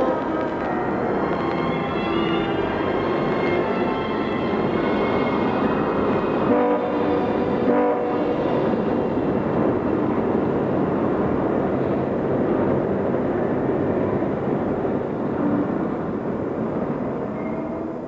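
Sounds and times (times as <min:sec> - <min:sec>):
train horn: 0:00.0 - 0:01.1, 0:01.7 - 0:08.7
train rumbling: 0:00.0 - 0:18.0.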